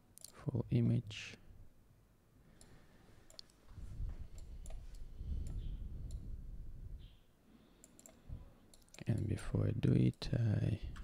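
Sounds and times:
computer mouse clicks: 3.3 - 3.6, 4.3 - 6.3, 7.8 - 9.3.

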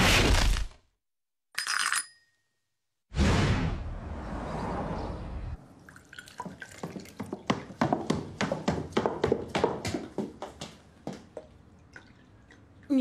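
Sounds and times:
car driving past: 3.4 - 5.8
footsteps on wooden stairs: 6.4 - 11.6.

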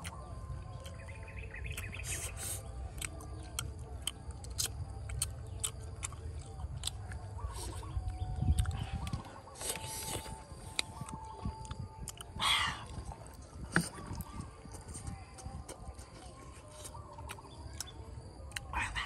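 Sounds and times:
chewing: 0.0 - 19.0
birds chirping: 0.1 - 4.1.

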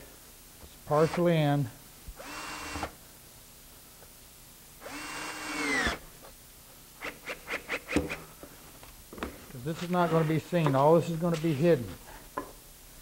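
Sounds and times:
power drill driving screws: 2.2 - 3.0, 4.8 - 6.0.

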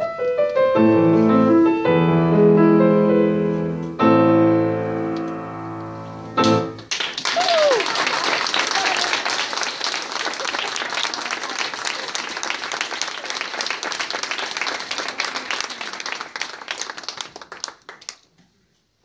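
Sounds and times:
audience applauding: 6.4 - 18.3.

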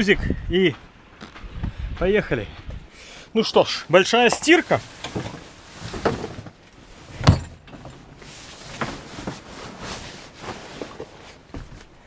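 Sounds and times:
sail bag rustling: 4.0 - 12.0
heavy thud: 7.1 - 7.8.

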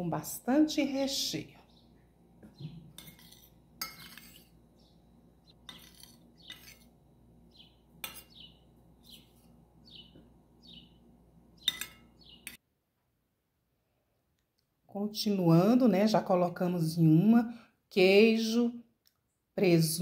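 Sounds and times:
small bird chirping: 1.6 - 3.3, 4.2 - 6.9, 7.5 - 12.6
metal spoon clinking on glass: 3.0 - 4.5, 11.6 - 12.2.

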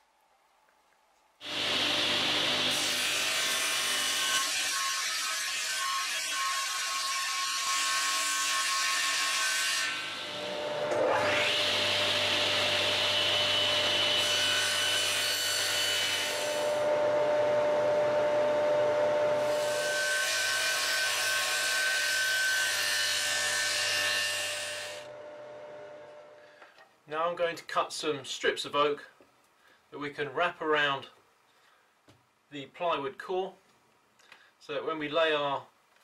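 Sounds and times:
table saw cutting: 1.4 - 26.0.

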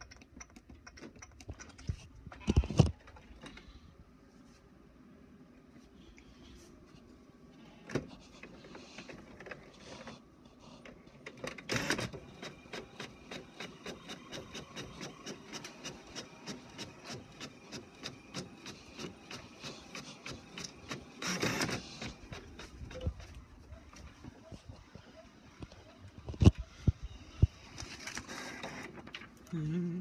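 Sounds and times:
inkjet printer printing: 11.2 - 23.2, 28.1 - 29.2.

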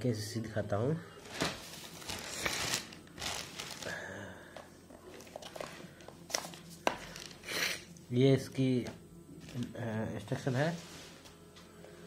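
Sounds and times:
packaging rustling and crinkling: 1.2 - 4.0.

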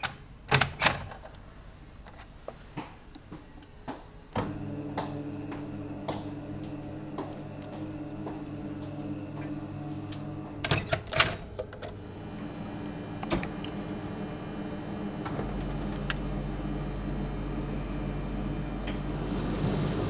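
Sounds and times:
steady room hum: 0.1 - 20.0
deep low hum: 4.5 - 10.6, 12.0 - 20.0.

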